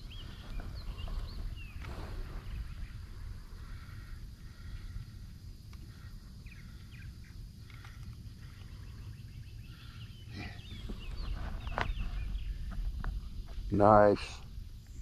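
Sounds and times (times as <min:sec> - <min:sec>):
small birds chirping: 0:00.0 - 0:15.0
wind rumble on microphone: 0:00.0 - 0:15.0.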